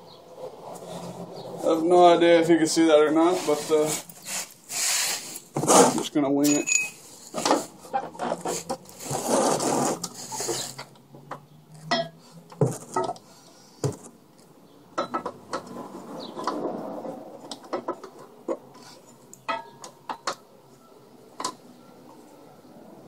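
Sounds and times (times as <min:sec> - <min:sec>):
metallic tool clinks and knocks: 0:06.4 - 0:07.0.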